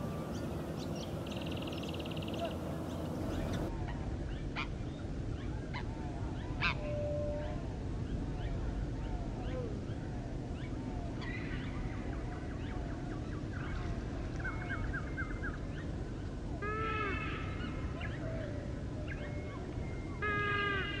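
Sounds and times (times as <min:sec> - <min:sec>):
birds chirping: 0:00.0 - 0:03.7
low arched bird calls: 0:00.0 - 0:03.7
steady low rumble: 0:00.0 - 0:16.6.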